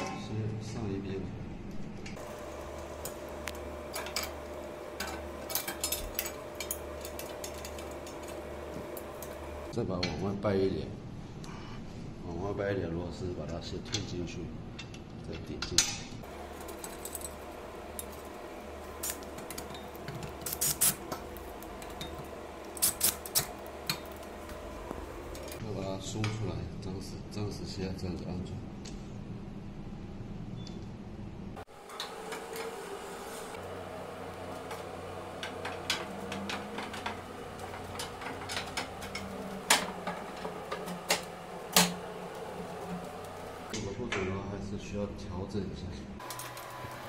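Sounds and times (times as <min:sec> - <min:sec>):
low hum: 0:16.2 - 0:25.6.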